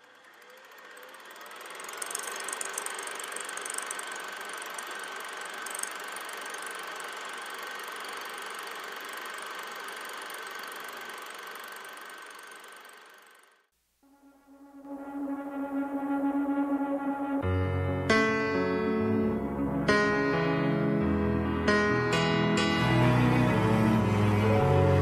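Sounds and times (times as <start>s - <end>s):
film projector whirring: 0.0s - 13.7s.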